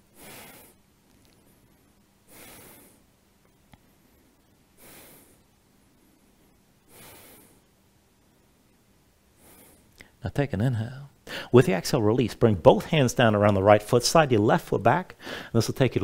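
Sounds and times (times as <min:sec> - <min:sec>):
man breathing deeply: 0:00.0 - 0:00.8, 0:02.2 - 0:03.1, 0:04.8 - 0:07.8, 0:09.4 - 0:10.2, 0:11.2 - 0:11.6, 0:15.2 - 0:15.6.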